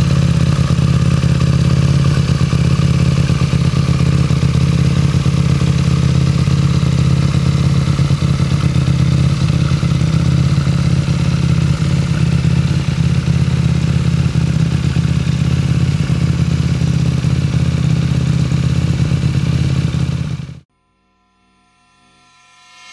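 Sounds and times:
motorcycle engine idling: 0.0 - 20.7.

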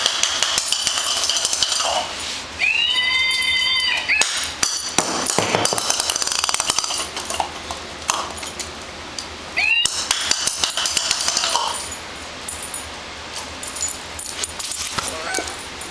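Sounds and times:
plastic ball clattering on concrete: 4.7 - 8.6, 9.9 - 11.9.

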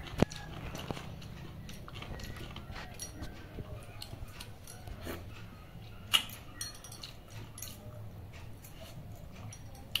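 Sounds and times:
person chewing food: 0.0 - 10.0
hand clinking steel plate: 6.2 - 8.0.

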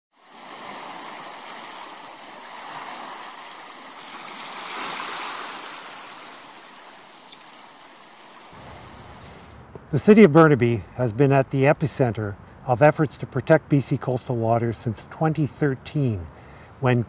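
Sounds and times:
water rushing: 0.2 - 10.2.

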